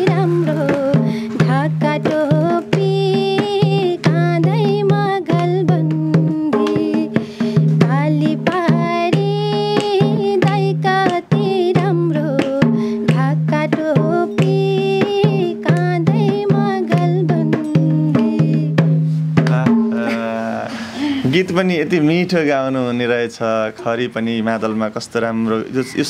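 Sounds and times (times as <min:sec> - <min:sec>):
woman singing folk song: 0:00.0 - 0:19.0
hand drum strokes: 0:00.0 - 0:21.4.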